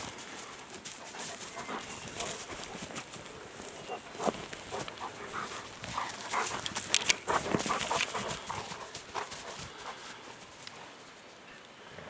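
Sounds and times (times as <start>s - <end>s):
dogs panting: 0.0s - 11.0s
dry hay rustling and crunching: 0.0s - 11.4s.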